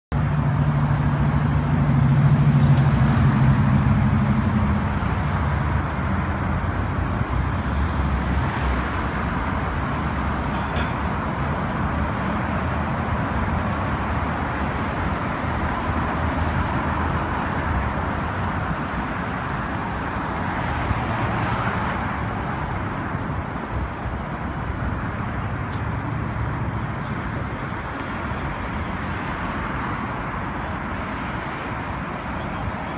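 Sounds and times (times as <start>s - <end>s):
road vehicle engine hum: 0.1s - 32.9s.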